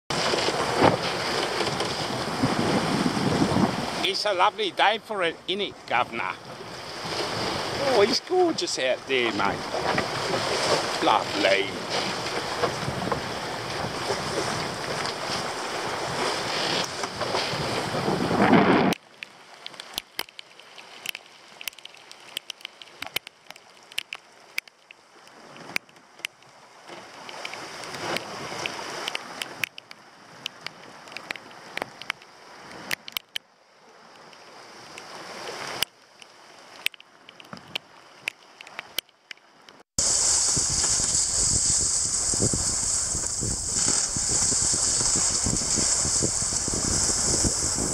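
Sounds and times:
wind buffeting microphone: 0:00.1 - 0:04.0, 0:40.0 - 0:47.9
water rushing along hulls: 0:00.1 - 0:47.9.

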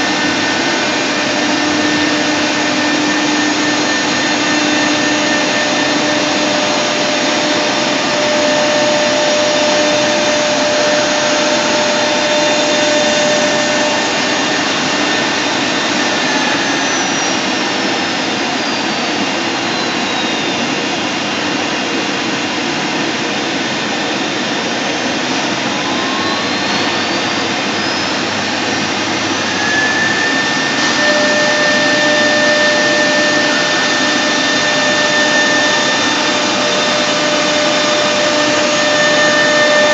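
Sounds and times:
cnc router cutting board: 0:00.0 - 0:39.9
spindle whine changing pitch: 0:00.0 - 0:39.9.

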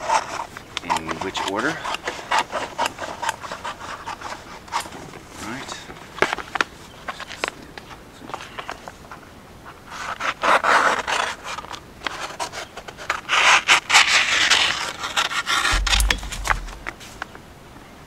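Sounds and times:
vinyl decal sheets rubbing and scraping: 0:09.9 - 0:15.8
short low bump: 0:15.7 - 0:17.2.

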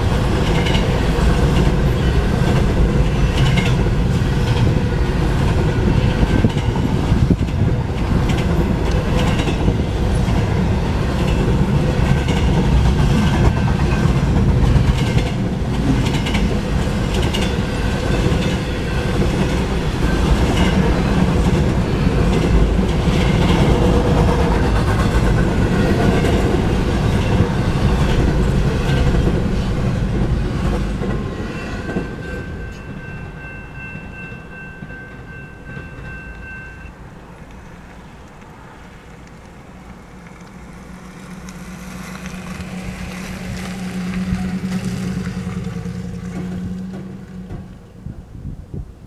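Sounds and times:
freight train rumbling and clattering: 0:00.0 - 0:36.6, 0:38.3 - 0:49.0
road vehicle engine: 0:37.0 - 0:48.3.

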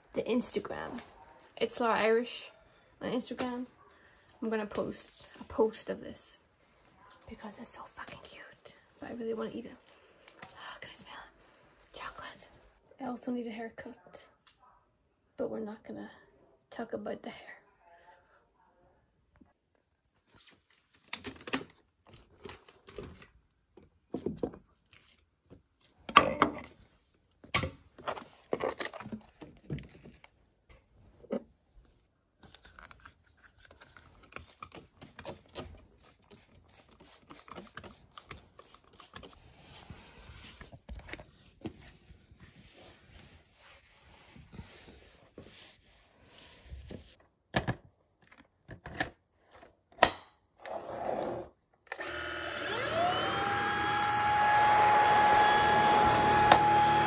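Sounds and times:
soft rubbing and wiping: 0:36.0 - 0:47.2.

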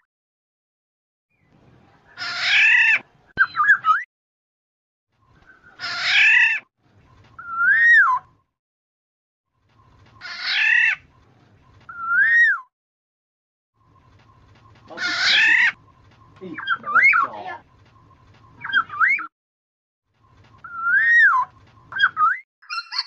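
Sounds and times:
bird calling with harsh whistle: 0:07.4 - 0:08.3, 0:11.9 - 0:12.7, 0:18.5 - 0:19.3, 0:20.5 - 0:23.0.

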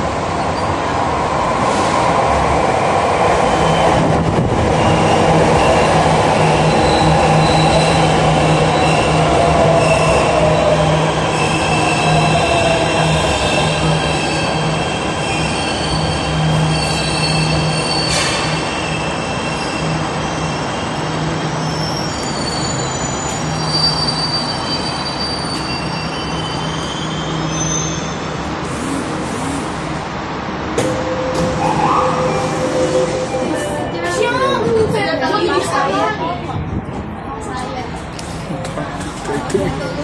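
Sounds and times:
train running noise: 0:00.0 - 0:40.0
wheels and brakes squealing: 0:04.8 - 0:10.7, 0:11.3 - 0:28.3.

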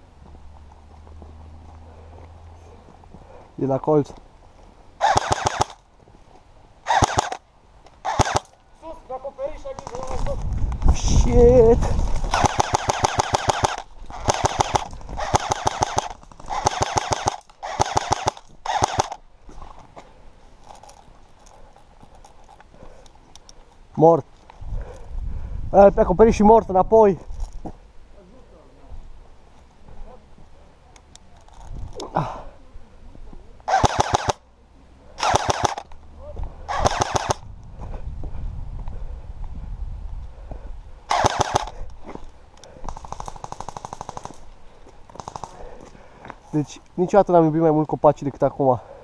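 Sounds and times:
airsoft rifle firing bursts: 0:05.0 - 0:05.8, 0:06.8 - 0:07.4, 0:08.0 - 0:08.6, 0:12.3 - 0:19.2, 0:33.7 - 0:34.4, 0:35.2 - 0:35.9, 0:36.7 - 0:37.4, 0:41.1 - 0:41.8, 0:42.9 - 0:44.4, 0:45.2 - 0:45.6.

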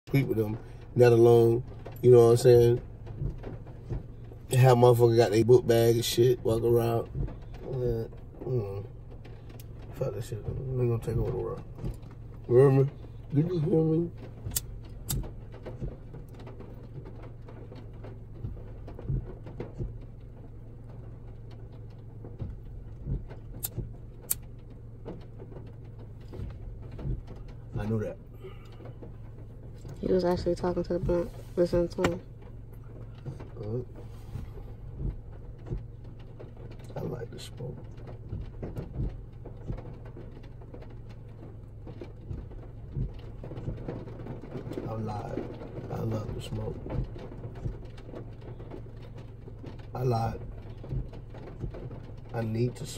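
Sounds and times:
car engine hum: 0:00.0 - 0:52.9
rain ticking on car: 0:00.0 - 0:52.9
soft thumps: 0:01.6 - 0:04.6, 0:14.2 - 0:52.2.

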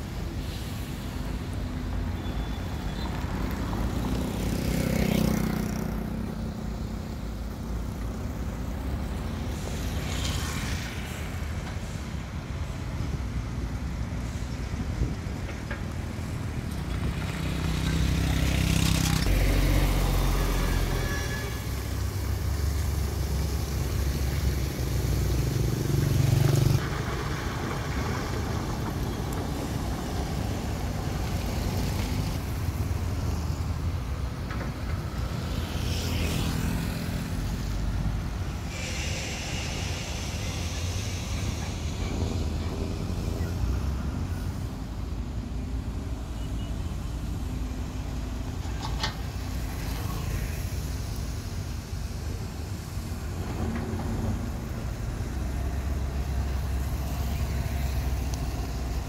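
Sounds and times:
road traffic passing: 0:00.0 - 0:59.0.

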